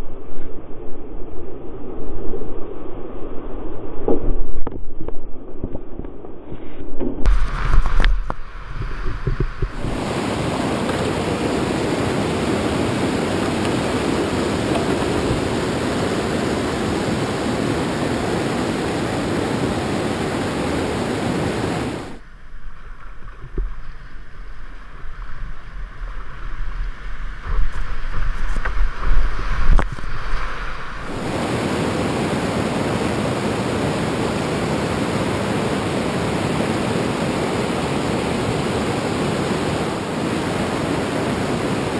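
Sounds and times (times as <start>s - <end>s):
river rapids roaring: 9.7s - 22.2s, 30.2s - 41.9s.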